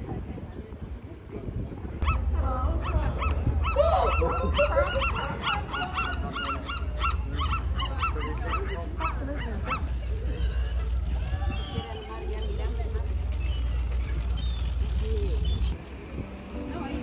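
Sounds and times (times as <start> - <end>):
sea lions barking: 2.0 - 10.1.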